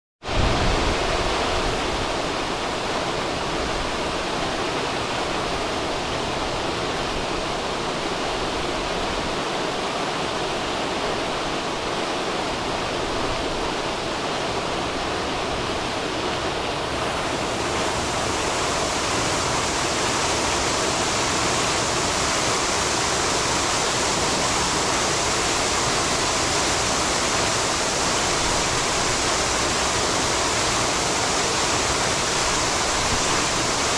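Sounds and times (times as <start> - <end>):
fountain water splashing into basin: 17.1 - 33.9.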